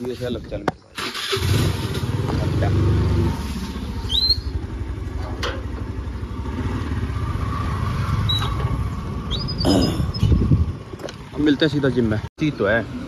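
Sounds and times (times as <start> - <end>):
scooter engine idling: 3.8 - 9.3.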